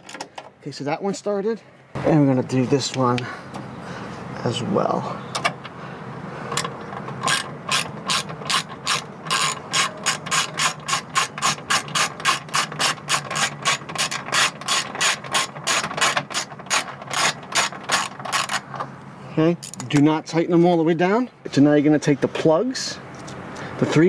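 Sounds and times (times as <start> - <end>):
hand ratchet clicking: 6.6 - 18.6.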